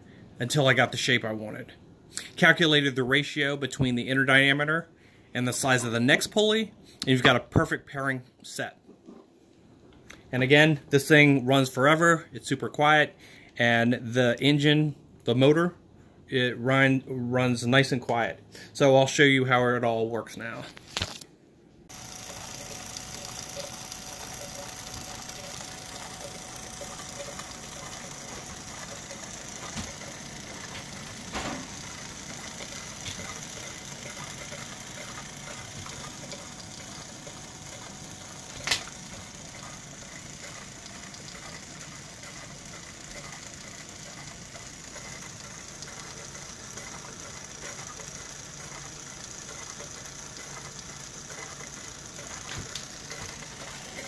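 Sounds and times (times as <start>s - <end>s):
rock tumbler motor humming: 21.9s - 54.0s
sharp click: 38.6s - 38.9s.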